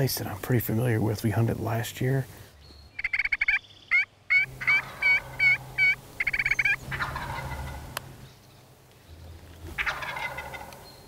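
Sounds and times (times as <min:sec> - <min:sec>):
wild turkey yelping: 0:02.9 - 0:08.0, 0:09.7 - 0:10.9.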